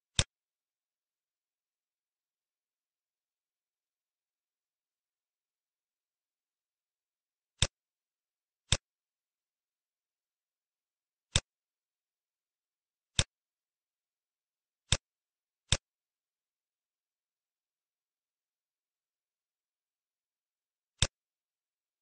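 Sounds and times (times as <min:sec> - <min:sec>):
computer mouse clicks: 0:00.1 - 0:00.4, 0:07.6 - 0:07.8, 0:13.1 - 0:13.4, 0:15.7 - 0:15.9, 0:21.0 - 0:21.2.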